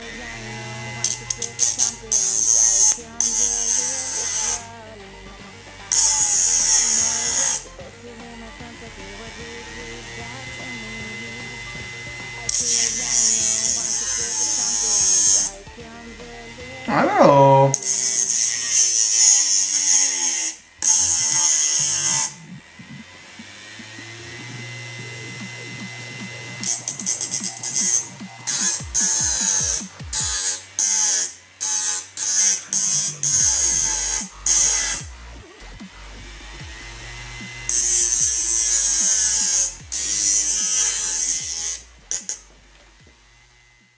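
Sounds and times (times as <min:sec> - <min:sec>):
music with steady beat: 0:00.0 - 0:20.0, 0:20.6 - 0:43.9
grinder grinding metal tip: 0:00.0 - 0:43.9
motor running whine: 0:00.0 - 0:43.9
screwdriver scraping spinning platter: 0:17.8 - 0:43.9.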